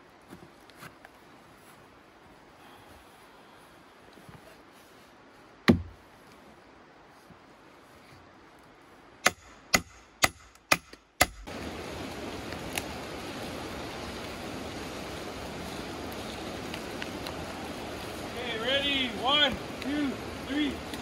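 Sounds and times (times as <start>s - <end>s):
steady rushing noise: 11.4s - 21.0s.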